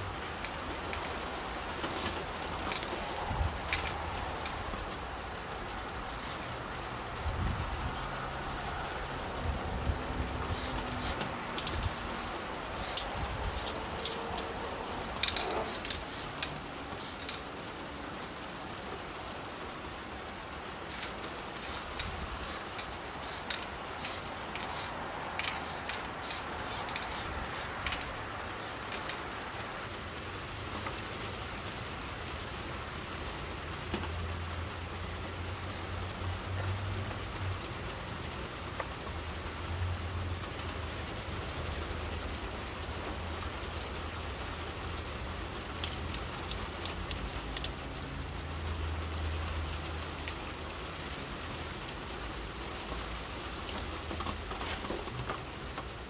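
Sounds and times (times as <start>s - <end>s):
rain hiss: 0.0s - 56.0s
spray paint can bursts: 0.1s - 4.7s, 6.2s - 6.5s, 10.4s - 12.0s, 12.8s - 17.4s, 20.9s - 29.3s.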